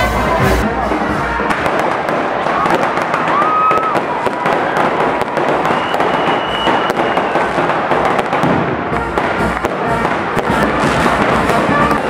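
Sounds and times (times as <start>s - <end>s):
fireworks crackling: 0.0s - 12.0s
thin steady whistle: 5.6s - 7.5s.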